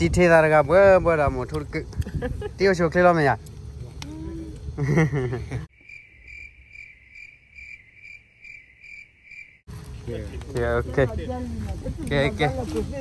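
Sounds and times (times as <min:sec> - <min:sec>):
cricket chirping: 0:00.0 - 0:03.2, 0:04.8 - 0:09.7.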